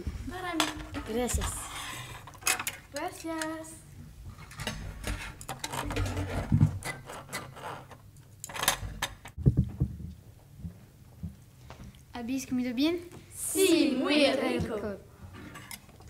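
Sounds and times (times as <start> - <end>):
cutlery and dishes clattering: 4.4 - 7.6.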